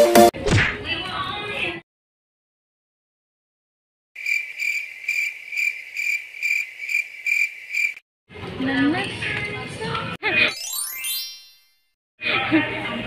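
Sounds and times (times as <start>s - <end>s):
cricket chirping: 4.2s - 8.0s.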